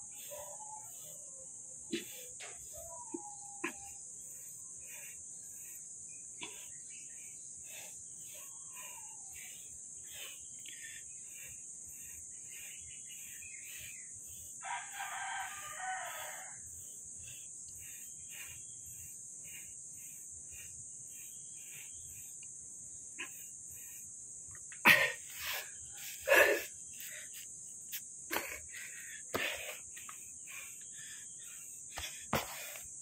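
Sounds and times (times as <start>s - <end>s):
rooster crowing: 14.6s - 16.6s.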